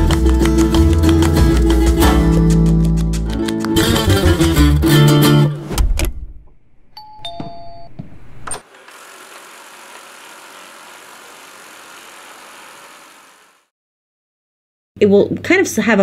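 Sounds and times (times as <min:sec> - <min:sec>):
guitar music: 0:00.0 - 0:05.6
robot vacuum running: 0:08.6 - 0:13.7.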